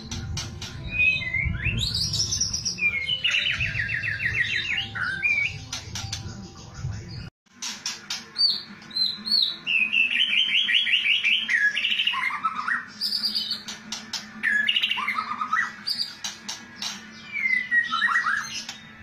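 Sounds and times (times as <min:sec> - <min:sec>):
bird singing: 0:00.0 - 0:07.3, 0:08.2 - 0:19.0.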